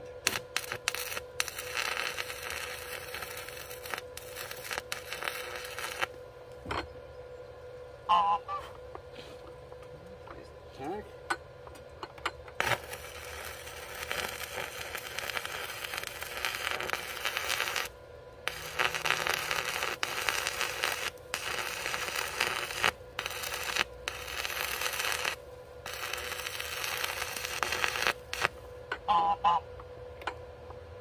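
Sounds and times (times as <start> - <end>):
welding arc crackling: 0.0 - 6.2, 12.6 - 28.7.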